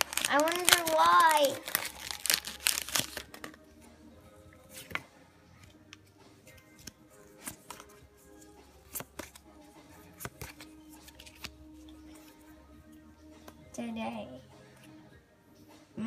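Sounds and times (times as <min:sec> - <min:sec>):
foil wrapper crinkling: 0:00.0 - 0:03.5
cards clicking: 0:00.0 - 0:03.6, 0:05.9 - 0:08.0, 0:08.9 - 0:09.4, 0:10.0 - 0:11.6
quiet background music: 0:00.0 - 0:16.0.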